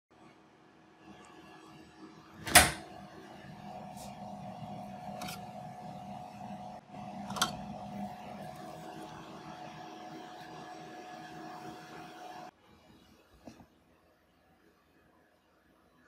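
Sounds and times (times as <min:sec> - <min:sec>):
printer mechanical hum: 0:01.0 - 0:13.1.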